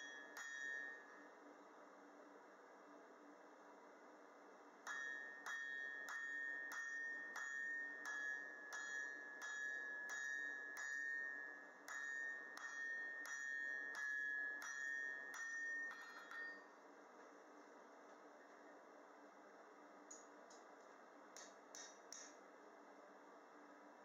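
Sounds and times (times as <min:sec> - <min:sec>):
anvil ringing: 0:00.0 - 0:01.2, 0:04.9 - 0:16.7
hammer striking steel on anvil: 0:00.0 - 0:01.2, 0:04.9 - 0:16.7, 0:21.4 - 0:22.4.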